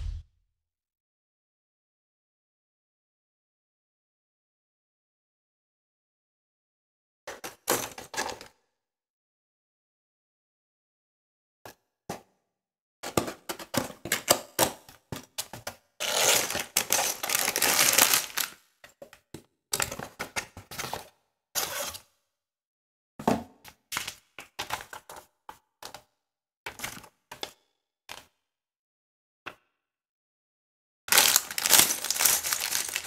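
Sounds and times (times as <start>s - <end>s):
plastic bags rustling: 16.0s - 18.6s, 31.1s - 33.0s
bagged bricks rattling: 31.1s - 33.0s.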